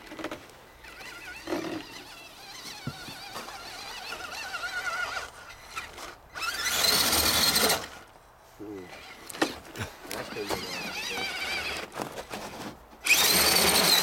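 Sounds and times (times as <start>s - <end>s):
electric motor whining: 0.0s - 8.0s, 13.0s - 14.0s.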